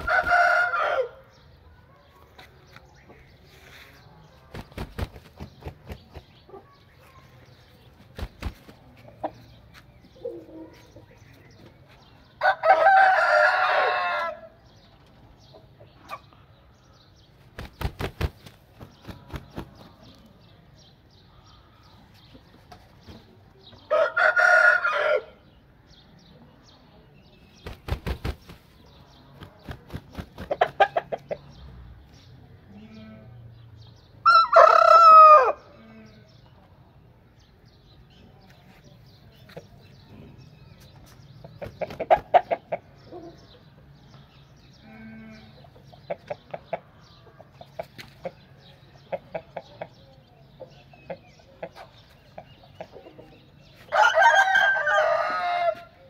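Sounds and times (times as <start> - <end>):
rooster crowing: 0.0 - 1.2, 12.4 - 14.4, 23.9 - 25.4, 53.9 - 55.9.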